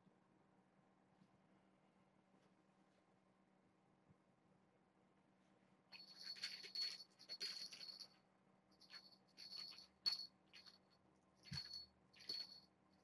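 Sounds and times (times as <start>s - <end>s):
jingle bell rattling: 5.9s - 8.2s, 8.8s - 13.0s.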